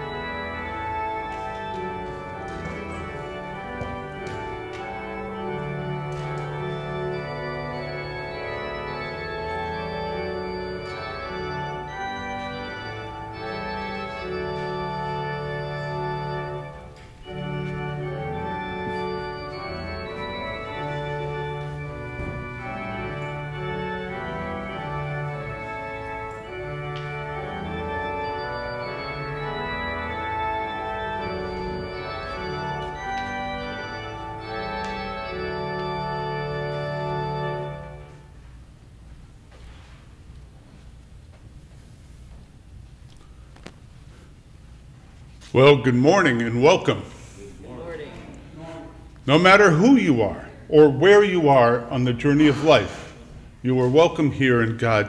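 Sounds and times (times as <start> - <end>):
pipe organ sustained chords: 0.0 - 39.4, 42.2 - 55.0.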